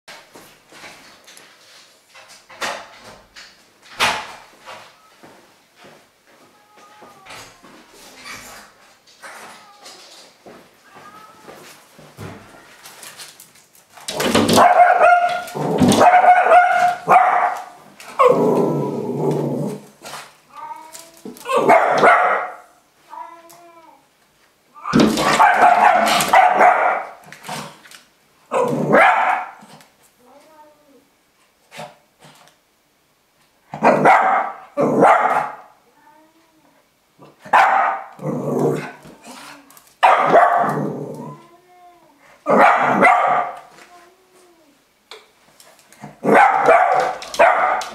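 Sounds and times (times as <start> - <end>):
dog barking and yelping: 14.4 - 18.4, 21.4 - 22.7, 24.9 - 27.2, 28.5 - 29.6, 33.8 - 35.7, 37.4 - 39.0, 40.0 - 41.3, 42.4 - 43.7, 46.2 - 47.9.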